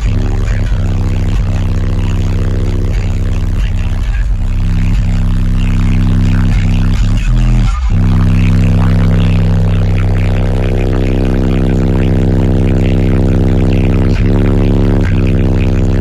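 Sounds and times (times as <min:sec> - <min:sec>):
deep bass music from subwoofers: 0:00.0 - 0:16.0.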